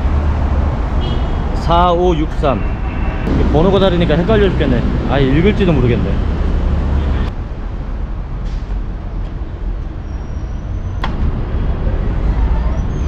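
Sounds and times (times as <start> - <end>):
buses passing: 0.0 - 1.6, 2.2 - 13.0
city traffic rumble: 0.0 - 13.0.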